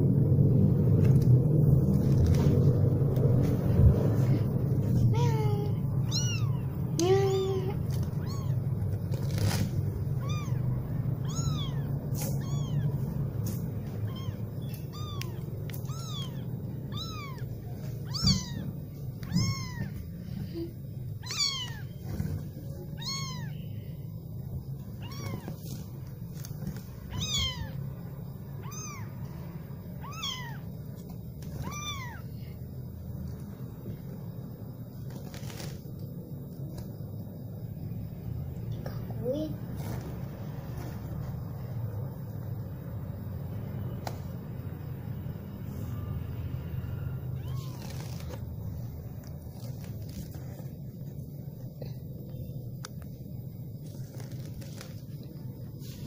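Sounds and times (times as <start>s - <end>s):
low steady rumble: 0.0s - 56.0s
kittens mewing: 4.9s - 24.0s, 24.8s - 32.6s, 47.1s - 48.4s.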